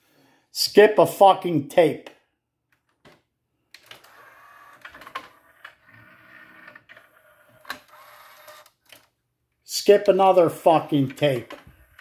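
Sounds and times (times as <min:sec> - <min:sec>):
small motor whirring: 0:04.0 - 0:08.7.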